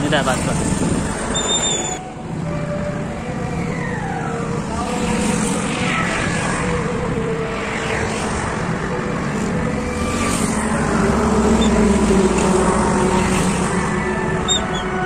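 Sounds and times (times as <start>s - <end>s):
highway traffic drone: 0.0s - 15.0s
heavy truck passing close: 4.6s - 15.0s.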